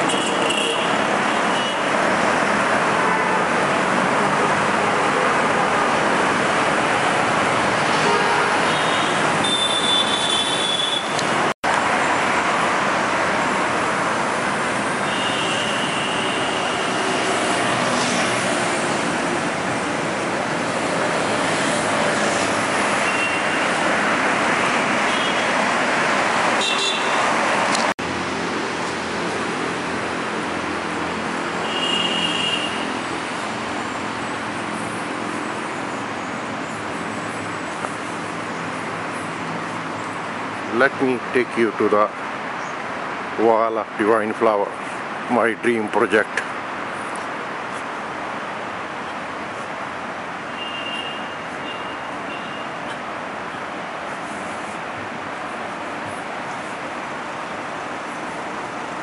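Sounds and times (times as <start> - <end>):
road traffic noise: 0.0 - 59.0
vehicle horn toots: 8.0 - 11.2, 26.6 - 27.2, 31.6 - 32.8, 50.6 - 52.7.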